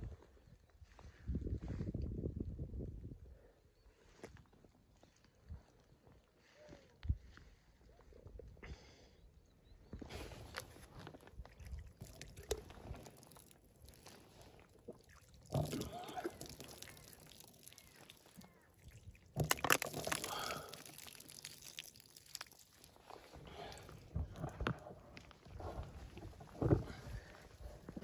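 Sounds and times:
water splashing and dripping: 11.3s - 24.6s.

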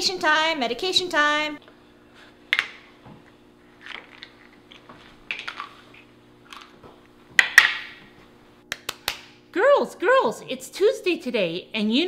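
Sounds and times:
faint steady hum: 0.0s - 12.0s.

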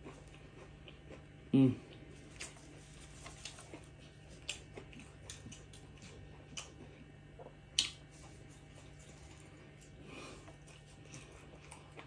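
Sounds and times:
faint hum: 0.0s - 12.0s
mouth chewing clicks and smacks: 4.4s - 6.8s, 7.4s - 8.0s.

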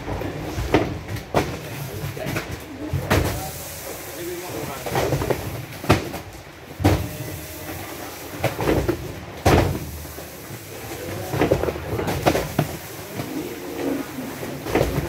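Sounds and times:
cartons thumping down: 4.8s - 7.4s, 8.3s - 10.1s, 11.0s - 15.0s.

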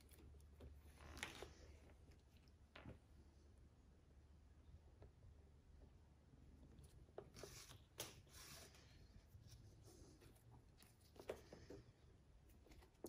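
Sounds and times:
thread rustling through leather: 0.0s - 3.1s
low steady hum: 0.0s - 13.0s.

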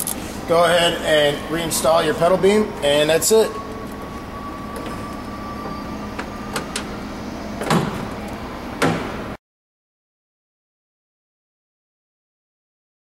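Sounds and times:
steady background hum: 0.0s - 9.4s
loud clunks: 7.6s - 9.4s.

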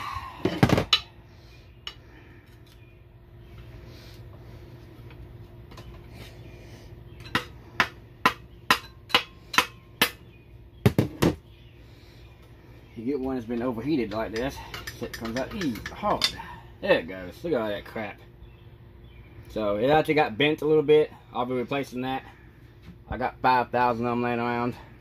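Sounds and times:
hammer striking steel pry bar: 7.2s - 10.2s.

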